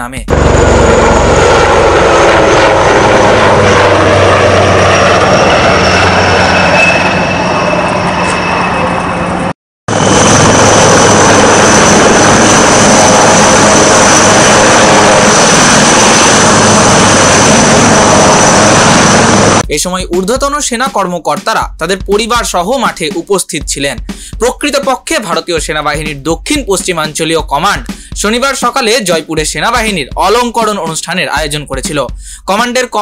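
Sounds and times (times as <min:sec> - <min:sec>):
helicopter engines and rotor: 0:00.0 - 0:19.6
high turbine whine: 0:00.0 - 0:19.6.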